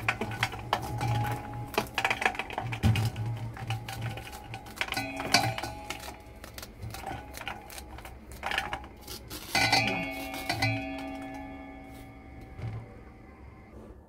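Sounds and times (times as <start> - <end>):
metallic ringing: 3.0 - 7.8, 8.4 - 13.7
knife scraping corn kernels: 4.1 - 11.0.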